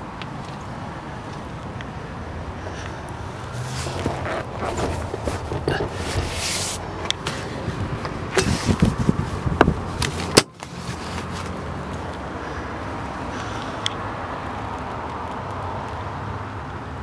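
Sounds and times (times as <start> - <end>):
engine idling hum: 0.0 - 14.0.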